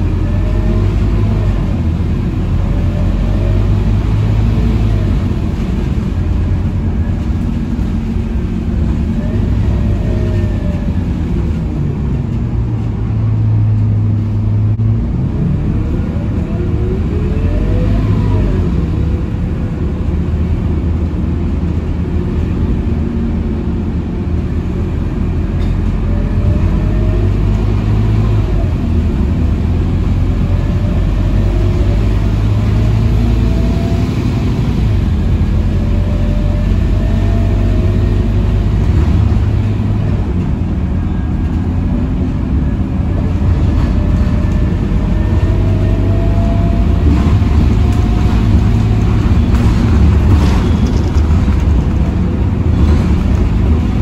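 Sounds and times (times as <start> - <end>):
diesel bus engine droning: 0.0 - 54.0
road and tyre noise: 0.0 - 54.0.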